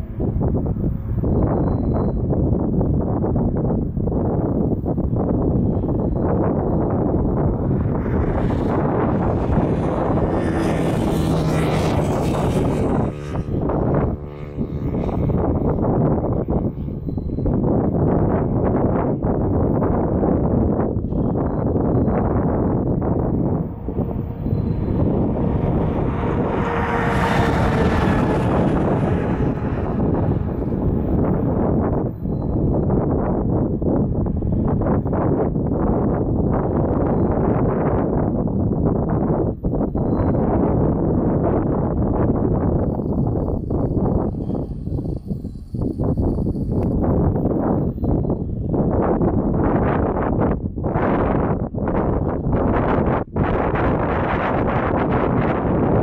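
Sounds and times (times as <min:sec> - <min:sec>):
wind buffeting the microphone: 0:00.0 - 0:56.0.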